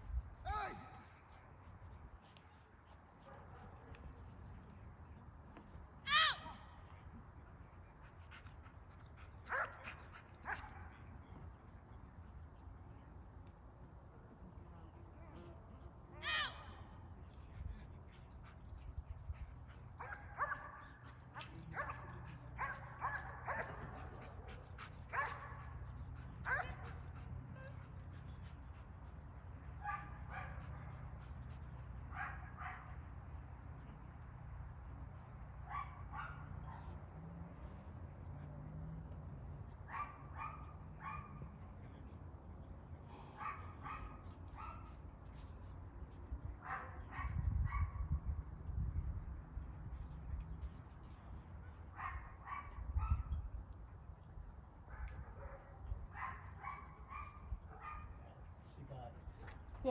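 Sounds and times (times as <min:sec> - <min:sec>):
dog barking: 0:09.5 - 0:09.9, 0:20.0 - 0:24.0, 0:25.1 - 0:25.6, 0:26.5 - 0:26.9, 0:32.1 - 0:32.9, 0:39.9 - 0:41.4, 0:54.9 - 0:58.2.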